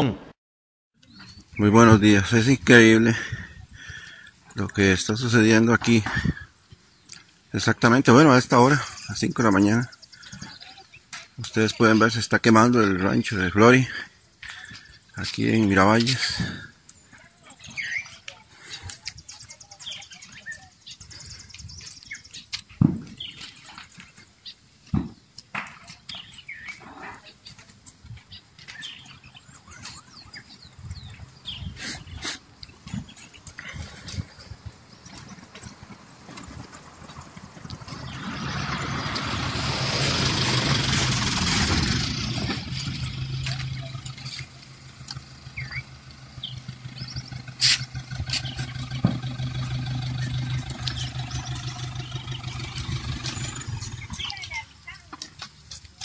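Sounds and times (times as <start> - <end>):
birds chirping: 1.0 - 56.0
vehicle engine idling: 27.5 - 56.0
low rumble: 35.6 - 54.4.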